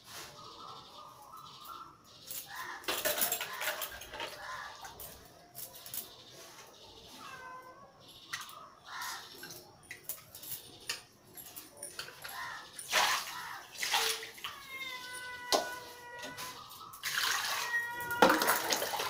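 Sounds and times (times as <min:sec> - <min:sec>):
cat meowing: 0:07.0 - 0:08.0, 0:14.0 - 0:19.0
fish washed in metal bowl: 0:11.9 - 0:14.6, 0:15.7 - 0:19.0.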